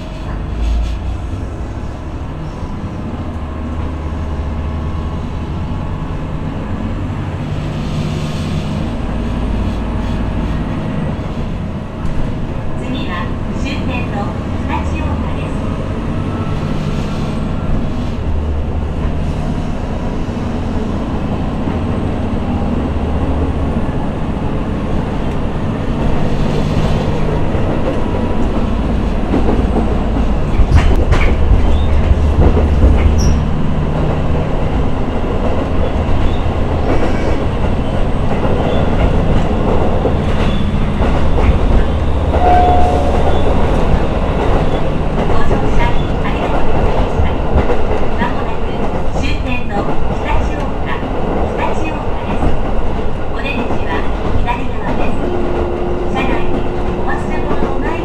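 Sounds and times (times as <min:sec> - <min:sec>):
diesel railcar engine drone: 0:00.0 - 0:58.0.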